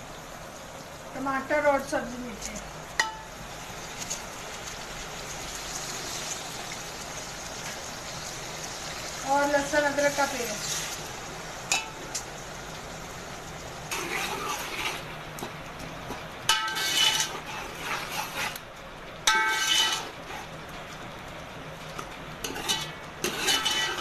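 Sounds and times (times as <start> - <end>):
metal ladle scraping a steel pot: 13.9 - 15.1, 16.5 - 18.6, 19.3 - 20.5, 22.4 - 24.0.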